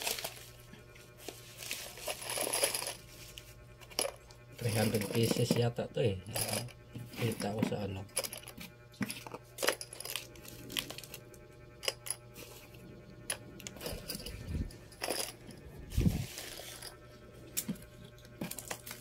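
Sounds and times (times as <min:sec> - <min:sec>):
small pins clicking and rattling: 0:02.0 - 0:03.0, 0:13.3 - 0:15.6.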